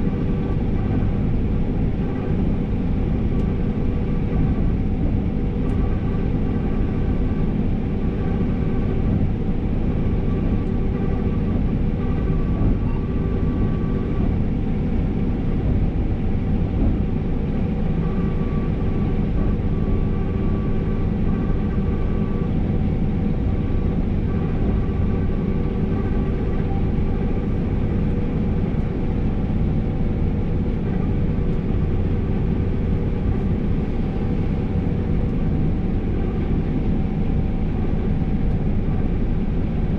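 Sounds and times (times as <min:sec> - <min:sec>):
combine harvester drone: 0:00.0 - 0:39.9
faint machinery whines: 0:00.0 - 0:39.9.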